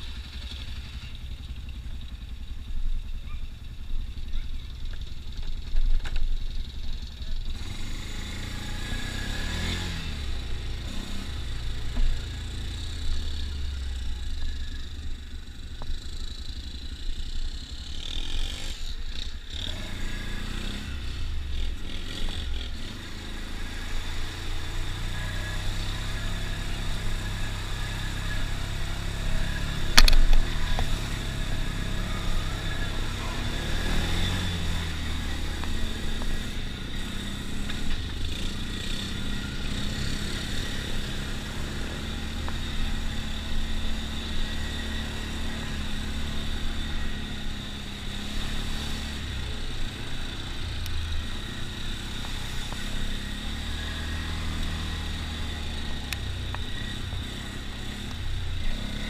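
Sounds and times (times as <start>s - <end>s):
quad bike engine running: 0.0s - 59.0s.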